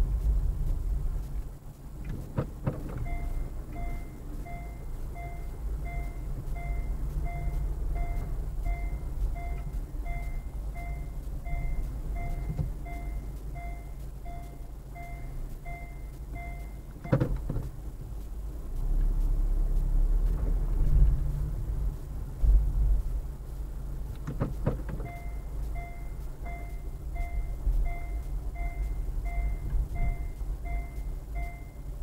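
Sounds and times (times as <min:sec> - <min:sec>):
car engine rumble: 0:00.0 - 0:32.0
reversing warning beeper: 0:03.0 - 0:17.2, 0:25.1 - 0:32.0.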